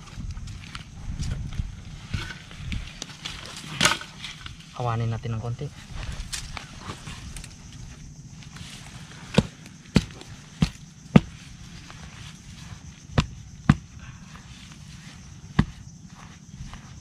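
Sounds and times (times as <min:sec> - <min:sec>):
low steady rumble: 0:00.0 - 0:17.0
sharp knocks digging soil: 0:09.2 - 0:12.1, 0:13.0 - 0:14.0, 0:15.4 - 0:17.0.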